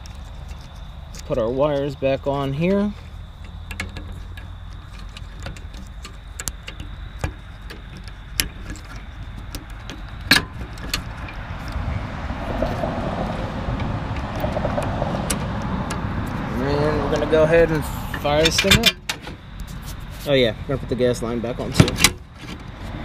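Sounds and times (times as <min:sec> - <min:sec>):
handling rustle: 0:00.0 - 0:12.9
steady low rumble: 0:00.0 - 0:23.0.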